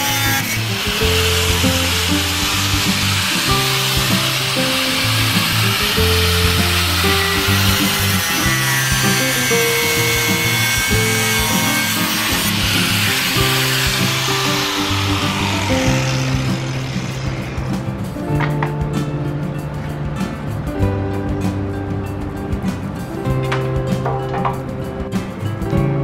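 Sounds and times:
angle grinder cutting metal: 0:00.0 - 0:18.4
background music with bass line: 0:00.0 - 0:26.0.

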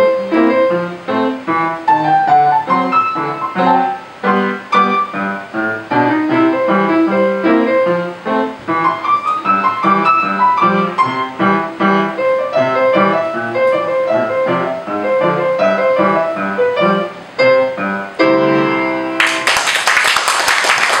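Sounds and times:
piano piece: 0:00.0 - 0:21.0
applause: 0:19.2 - 0:21.0.

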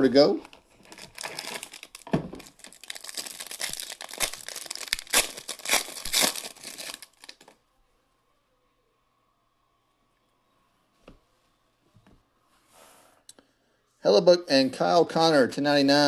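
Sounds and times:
foil wrapper crinkling and tearing: 0:00.5 - 0:07.6.

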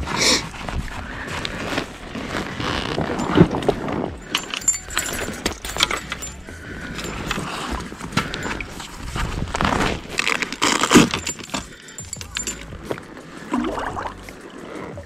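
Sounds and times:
fishing tackle clinking and knocking: 0:03.0 - 0:15.0.

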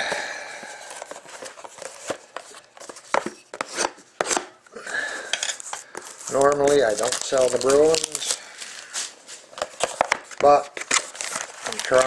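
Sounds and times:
plastic shrink-wrap tearing: 0:06.3 - 0:09.0, 0:10.4 - 0:12.0.

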